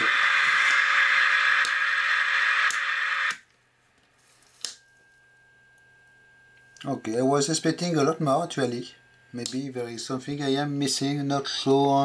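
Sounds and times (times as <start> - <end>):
radio static hiss: 0.0 - 3.4
click: 1.6 - 1.8, 2.7 - 3.5.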